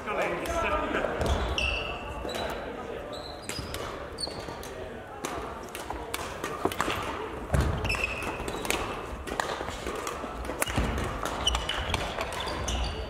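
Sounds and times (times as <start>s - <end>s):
footfalls on court floor: 1.1s - 1.6s, 6.6s - 9.5s
shoe squeaks: 1.2s - 4.6s, 7.8s - 8.7s, 11.4s - 13.0s.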